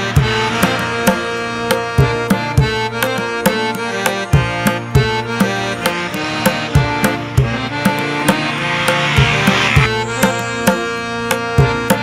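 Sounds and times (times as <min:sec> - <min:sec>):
sustained melodic notes: 0:00.0 - 0:12.0
drum strikes: 0:05.0 - 0:10.4.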